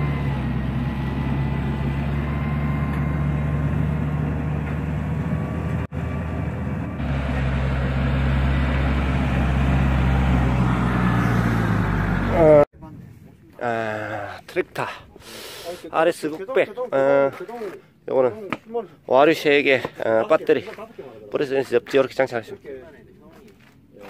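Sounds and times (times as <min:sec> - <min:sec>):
tractor diesel engine running: 0:00.0 - 0:12.7.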